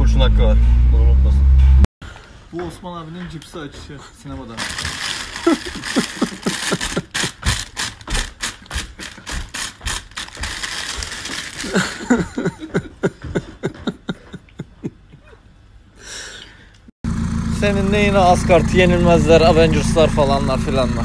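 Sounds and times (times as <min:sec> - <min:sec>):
foil crisp packet crinkling: 0:04.6 - 0:12.1.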